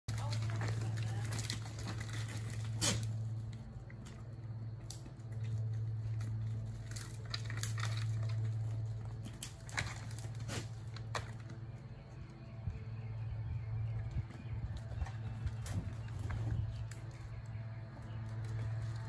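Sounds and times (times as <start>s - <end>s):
hoof clatter on rock: 0.1s - 3.2s
goats butting heads: 0.1s - 4.2s, 6.6s - 11.6s
steady low hum: 0.1s - 19.0s.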